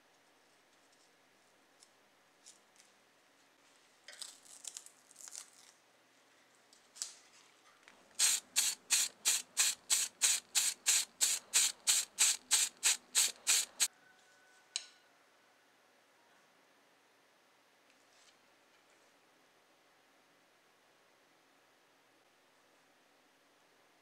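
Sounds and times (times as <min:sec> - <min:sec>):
masking tape crinkling: 0:04.1 - 0:05.8, 0:08.2 - 0:13.9
spray paint can hissing in bursts: 0:08.2 - 0:13.9.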